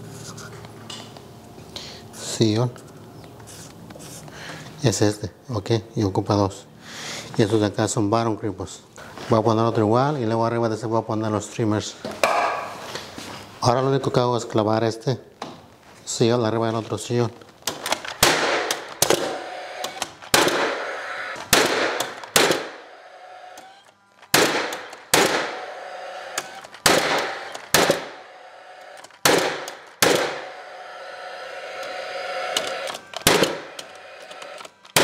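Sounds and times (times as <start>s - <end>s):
nail gun firing into wood: 17.7s - 22.8s, 23.6s - 25.6s, 26.4s - 28.2s, 29.0s - 30.5s, 32.6s - 35.0s
nailer motor whir: 17.7s - 35.0s.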